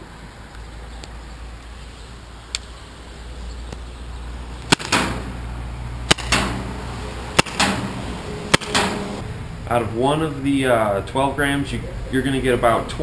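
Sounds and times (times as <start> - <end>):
paintball pistol shots: 4.7 - 5.4, 6.1 - 6.7, 7.4 - 7.9, 8.5 - 9.0.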